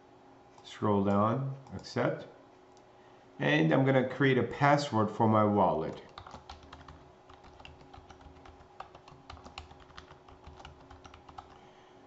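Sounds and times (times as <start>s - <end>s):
computer keyboard typing: 5.9s - 11.6s.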